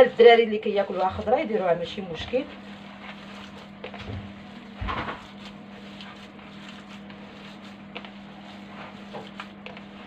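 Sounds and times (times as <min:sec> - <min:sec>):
steady low hum: 0:00.0 - 0:10.0
hands squishing minced meat: 0:02.0 - 0:10.0.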